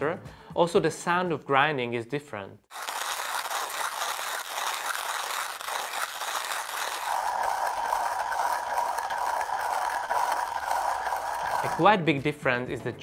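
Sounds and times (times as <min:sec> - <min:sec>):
hand grinder crunching coffee beans: 0:02.7 - 0:12.3.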